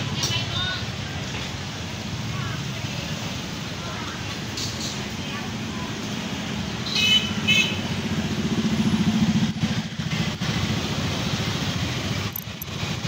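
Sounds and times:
scooter engines droning: 0.0 - 13.0
traffic hiss: 0.0 - 13.0.

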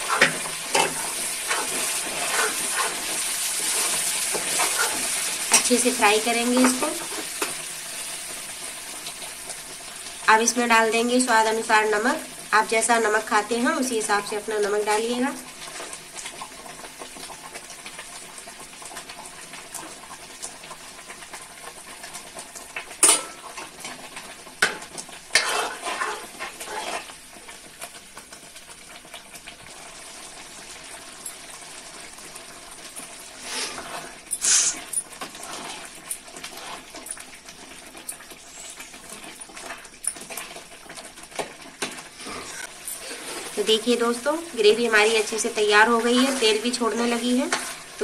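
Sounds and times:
ladle scraping pan: 0.0 - 5.7, 25.3 - 27.2, 46.0 - 47.9
gravy sizzling in oil: 0.0 - 48.0.

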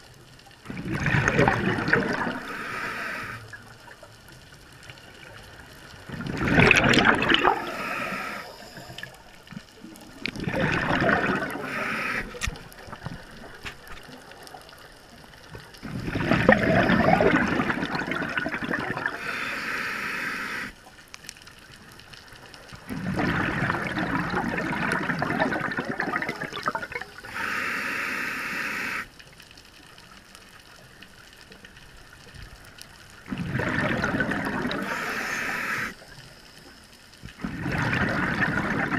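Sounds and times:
bubbling diver exhales: 0.7 - 3.5, 6.1 - 9.1, 10.3 - 12.5, 15.8 - 20.8, 22.9 - 29.1, 33.3 - 36.0, 37.4 - 38.9
regulator hiss: 2.3 - 3.5, 7.4 - 9.4, 11.6 - 12.8, 19.2 - 20.8, 27.1 - 29.1, 34.8 - 36.9.

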